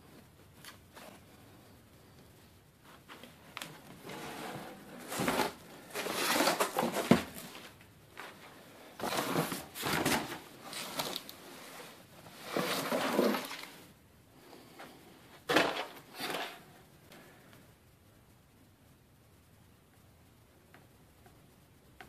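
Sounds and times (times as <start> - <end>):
boxes and cloth rustling: 2.8 - 16.7.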